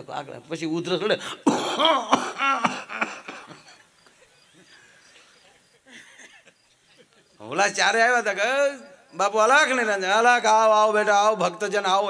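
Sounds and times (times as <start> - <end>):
man imitating hacking cough: 1.3 - 3.8.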